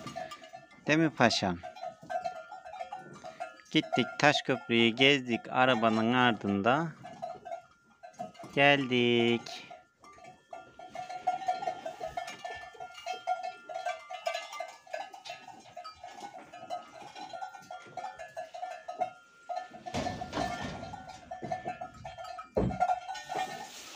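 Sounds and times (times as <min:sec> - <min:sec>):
livestock bell clanking: 0:00.0 - 0:23.9
rustling: 0:15.4 - 0:23.9.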